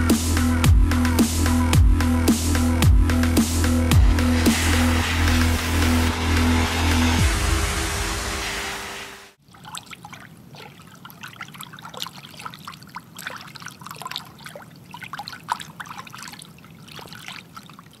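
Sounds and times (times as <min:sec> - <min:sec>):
water trickling and bubbling: 0:09.4 - 0:18.0.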